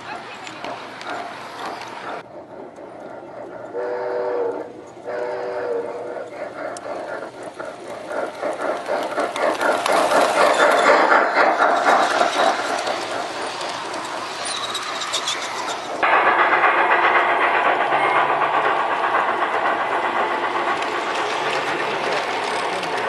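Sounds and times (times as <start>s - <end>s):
train wheels clicking over rails: 0.0s - 23.0s
model train chord whistle: 3.8s - 5.8s.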